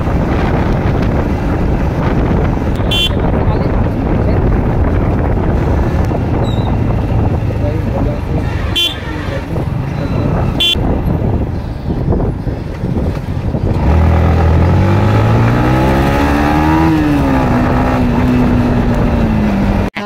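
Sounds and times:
motorcycle engine accelerating: 0.0 - 20.0
road and wind noise: 0.0 - 20.0
short horn toot: 2.8 - 3.3, 8.6 - 9.1.

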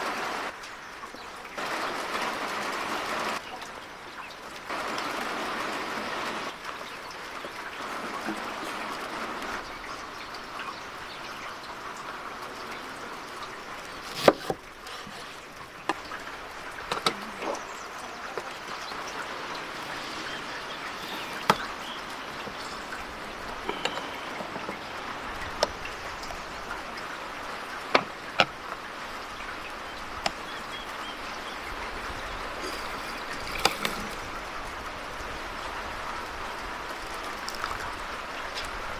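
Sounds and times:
lemon squeezer clicking and clanking: 32.6 - 34.3.

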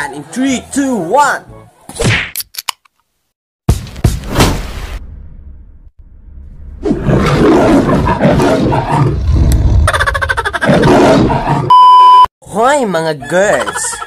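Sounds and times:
lion roaring: 6.9 - 9.9, 10.6 - 11.7.

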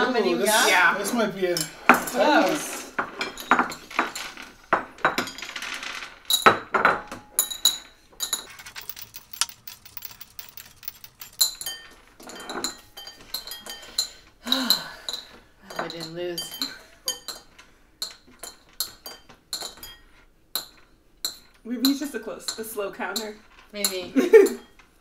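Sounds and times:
candies clinking against bowls: 1.5 - 24.9.

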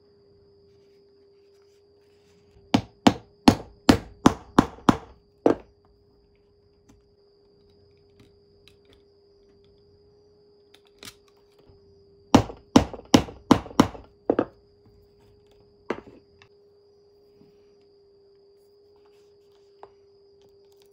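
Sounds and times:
hammer knocking metal punch: 2.8 - 5.6, 12.4 - 14.5.

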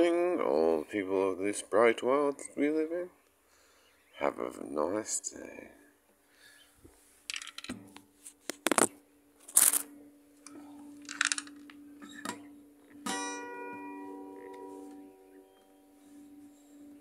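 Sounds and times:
acoustic guitar chord strummed: 11.7 - 17.0.

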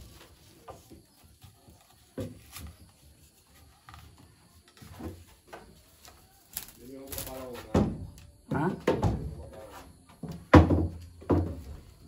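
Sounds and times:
wooden pole knocking and thumping: 7.6 - 9.5, 10.1 - 11.8.

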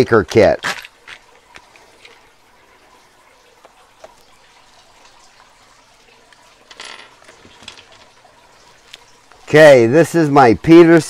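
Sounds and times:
lock tools rattling: 6.6 - 8.2.

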